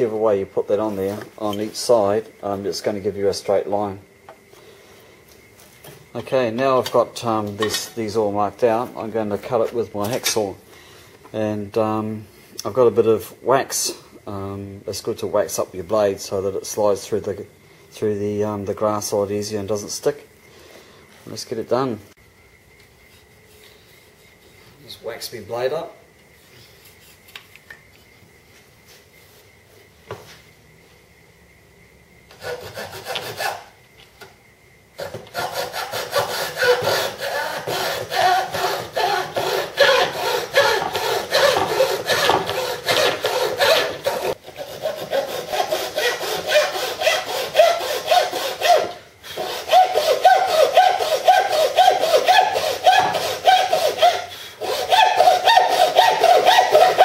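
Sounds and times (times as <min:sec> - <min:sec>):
hacksaw sawing: 0:32.3 - 0:33.7, 0:35.0 - 0:57.0.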